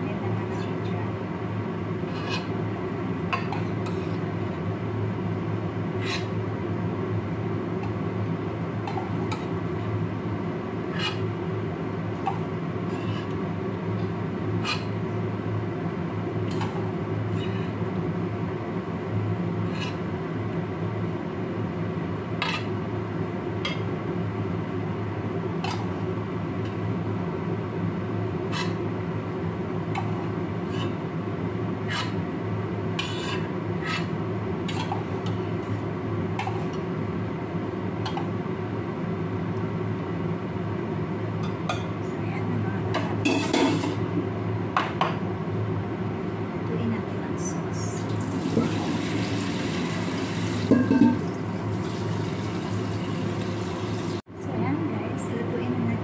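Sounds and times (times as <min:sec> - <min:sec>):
metal ladle clinking on pot: 0:50.7 - 0:51.2.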